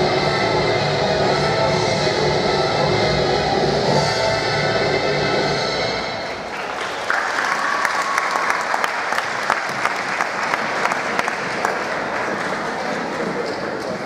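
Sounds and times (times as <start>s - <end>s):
audience applauding: 6.4s - 14.0s.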